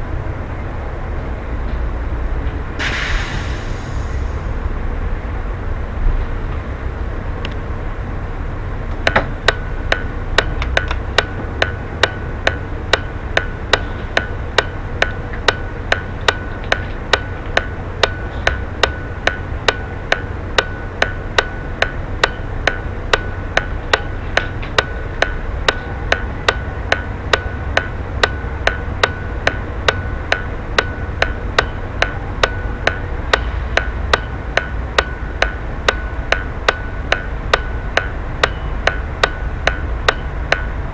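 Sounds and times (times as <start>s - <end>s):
bus diesel engine idling: 0.0s - 40.9s
turn signal ticking: 8.9s - 40.9s.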